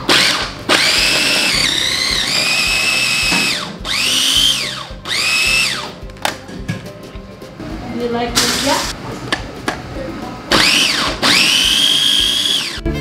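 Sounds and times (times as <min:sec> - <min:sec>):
food processor motor whine: 0:00.0 - 0:06.0, 0:10.5 - 0:12.8.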